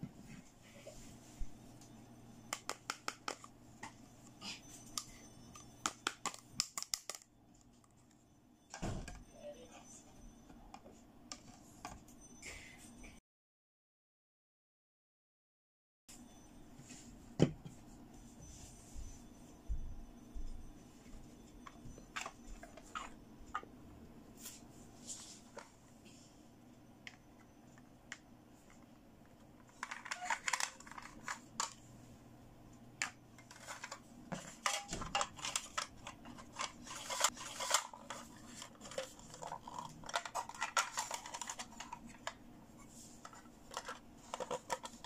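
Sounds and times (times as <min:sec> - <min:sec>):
plastic toys clicking and tapping: 0:02.5 - 0:03.5, 0:05.8 - 0:07.3, 0:29.7 - 0:31.8, 0:33.0 - 0:42.4, 0:43.2 - 0:45.0.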